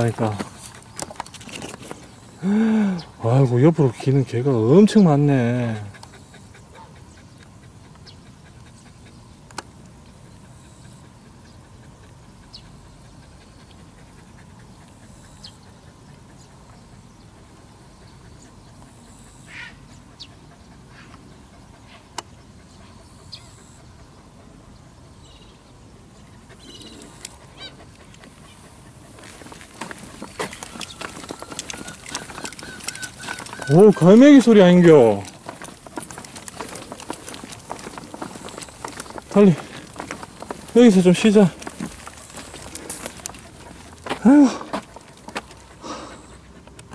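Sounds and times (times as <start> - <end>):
low background noise: 0.0 - 46.9
gulls calling: 26.6 - 45.1.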